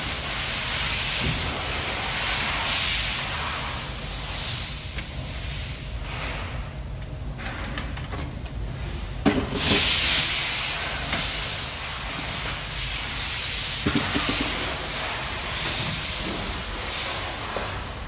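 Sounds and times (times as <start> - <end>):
steady hiss: 9.6 - 18.0
plastic parts knocking: 13.8 - 14.6.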